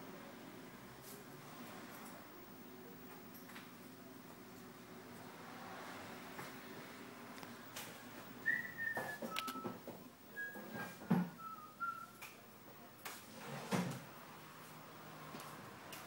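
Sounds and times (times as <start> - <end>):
short whistled notes: 8.4 - 9.7, 10.3 - 12.3.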